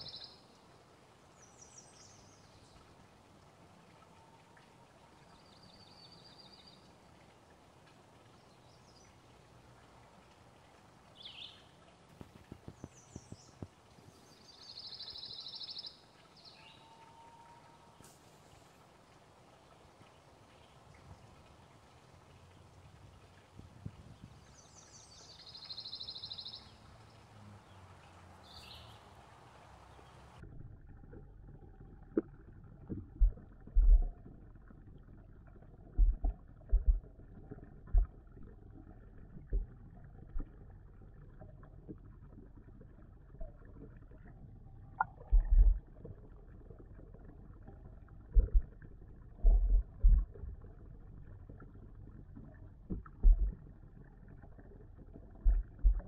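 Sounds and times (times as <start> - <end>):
faint outdoor air: 0.0 - 56.0
muffled underwater rumble: 20.7 - 24.8, 30.2 - 56.0
dull low thumps: 32.8 - 34.2, 35.8 - 37.2, 37.8 - 38.4, 45.0 - 46.2, 48.2 - 50.6, 52.8 - 53.7, 55.2 - 56.0.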